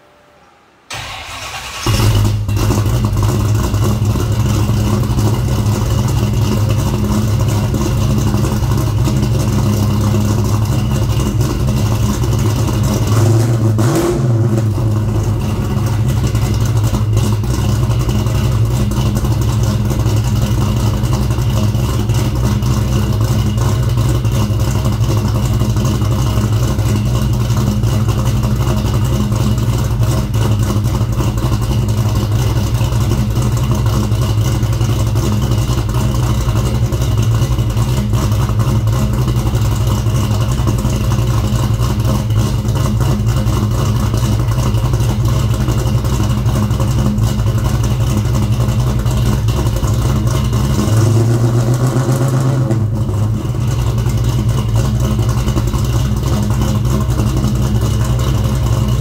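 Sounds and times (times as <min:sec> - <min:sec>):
car engine starting and idling: 0:00.0 - 0:59.0.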